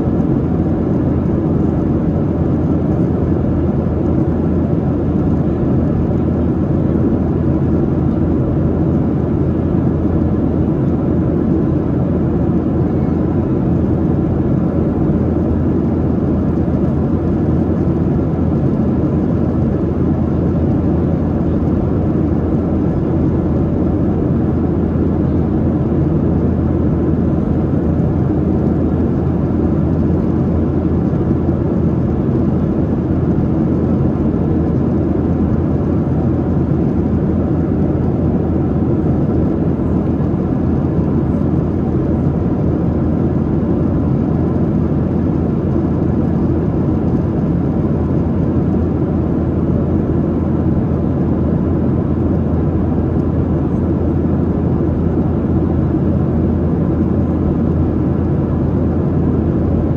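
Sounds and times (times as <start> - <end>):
airplane cabin engine drone: 0.0 - 59.9.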